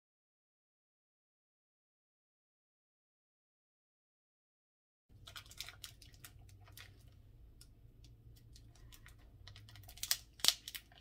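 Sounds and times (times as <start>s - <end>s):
faint room hum: 5.1s - 11.0s
plastic wrapping clicks and rustles: 5.2s - 7.7s, 8.3s - 11.0s.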